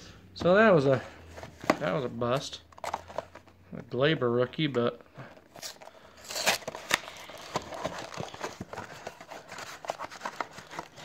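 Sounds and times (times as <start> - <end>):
cardboard box being torn open: 5.6 - 10.5.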